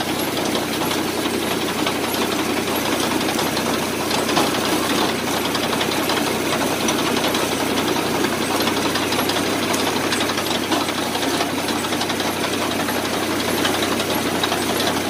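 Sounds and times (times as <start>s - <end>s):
rapid mechanical clatter: 0.0s - 15.0s
small engine running: 0.0s - 15.0s.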